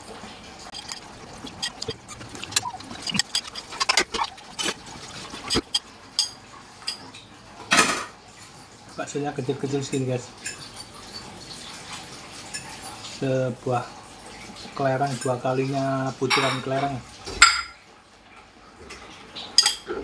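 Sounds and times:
chewing: 0.7s - 5.8s
slurping noodles and broth: 0.7s - 5.8s.

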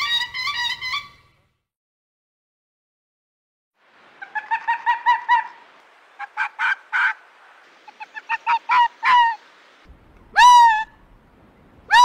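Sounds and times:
waterfowl honking: 4.2s - 9.5s.

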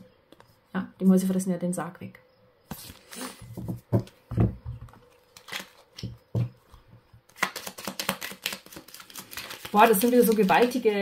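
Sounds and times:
cards shuffled clicking: 7.3s - 10.8s.

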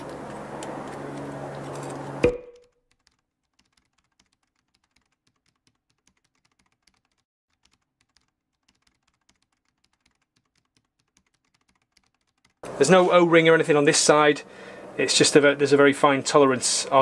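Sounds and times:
faint keyboard typing: 0.0s - 12.6s.

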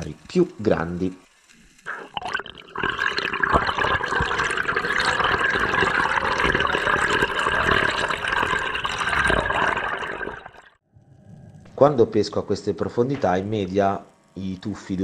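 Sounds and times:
underwater air bubbles gurgling: 1.9s - 10.8s.

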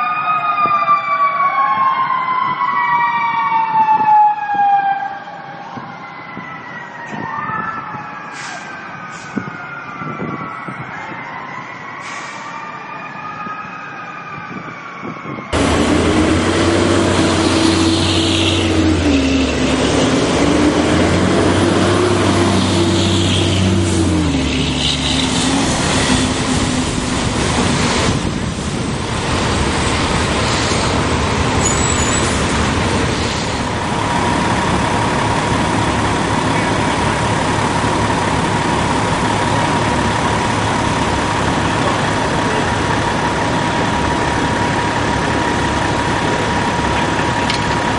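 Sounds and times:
heavy engine noise: 7.0s - 12.7s, 14.4s - 47.9s
tyres hissing on wet road: 15.6s - 39.9s.

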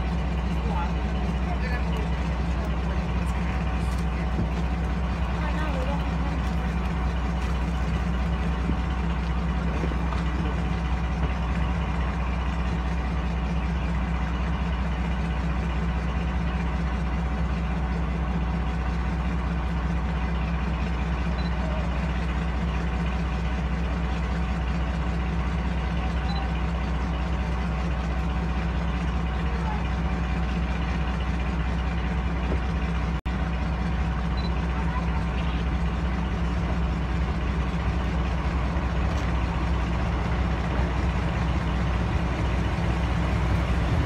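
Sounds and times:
diesel locomotive engine idling: 0.0s - 44.0s.

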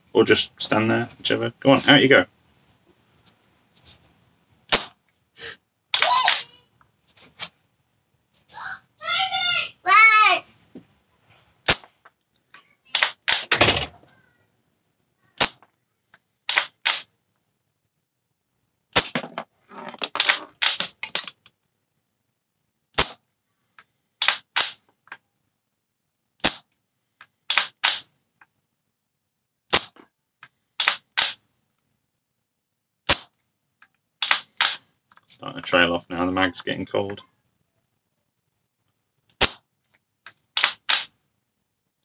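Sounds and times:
airsoft rifle shots: 4.7s - 5.0s, 11.6s - 11.9s, 12.9s - 13.9s, 15.4s - 15.6s, 16.5s - 17.1s, 18.9s - 19.2s, 20.2s - 21.2s, 23.0s - 23.2s, 24.2s - 24.8s, 26.4s - 26.7s, 27.5s - 28.1s, 30.8s - 31.4s, 33.1s - 33.3s, 34.2s - 34.8s, 40.6s - 41.1s.

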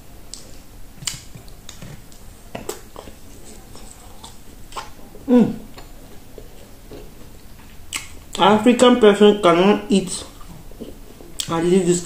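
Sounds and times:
chewing and gnawing on bone: 0.4s - 8.4s.

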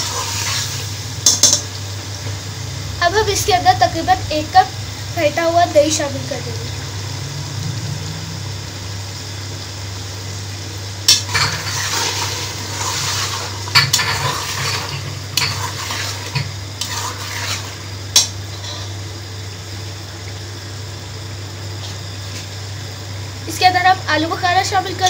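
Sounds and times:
masala sizzling: 0.0s - 25.0s
steady low hum: 0.0s - 25.0s
metal spatula scraping pot: 11.3s - 17.9s.

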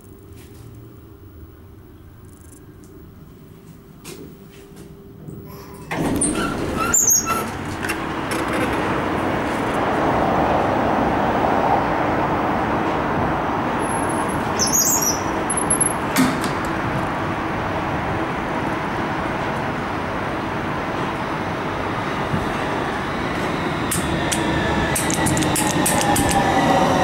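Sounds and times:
noisy station ambience: 0.0s - 27.0s
elevator doors opening: 5.2s - 10.0s, 13.7s - 17.6s, 20.8s - 27.0s
glass doors squeaking shut: 5.5s - 8.0s.

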